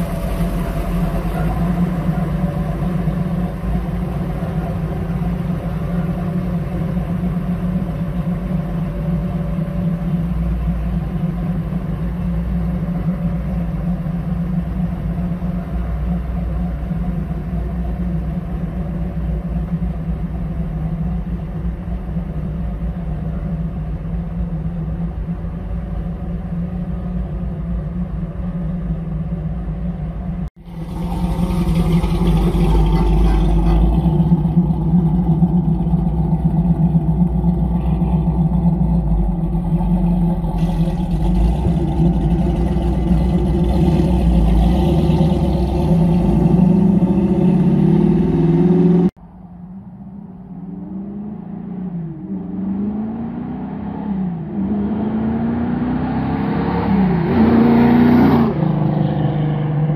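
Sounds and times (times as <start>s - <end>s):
car engine idling: 0.0s - 52.7s
car engine revving pulling away: 30.6s - 49.2s, 50.3s - 59.9s.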